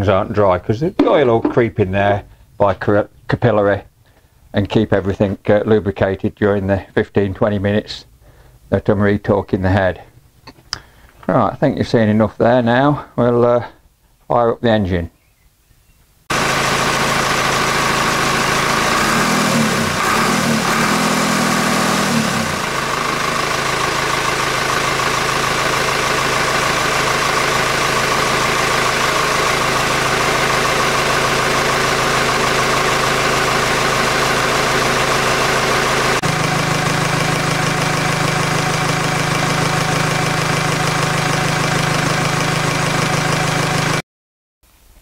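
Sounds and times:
tractor engine idling: 16.3 - 44.0.

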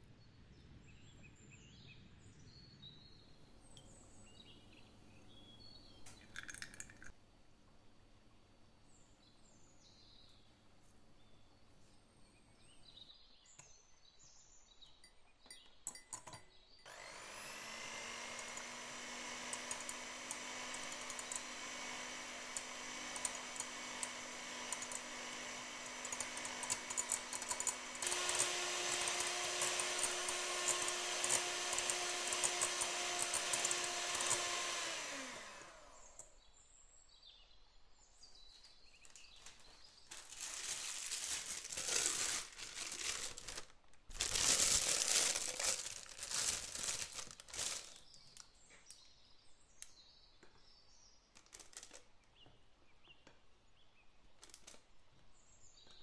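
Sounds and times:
electric hand mixer whirring: 16.9 - 36.4, 44.2 - 48.0
plastic piping bag crinkling: 18.2 - 34.8, 39.0 - 48.6, 51.3 - 52.2.

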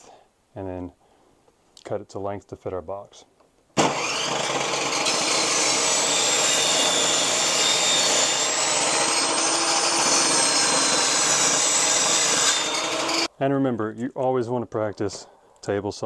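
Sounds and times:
high saw whine: 3.8 - 13.3
table saw cutting wood: 3.8 - 13.3.

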